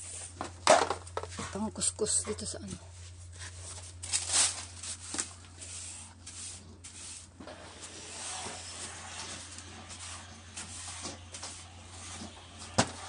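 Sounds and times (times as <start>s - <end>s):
scrubbing a surface by hand: 3.4s - 13.0s.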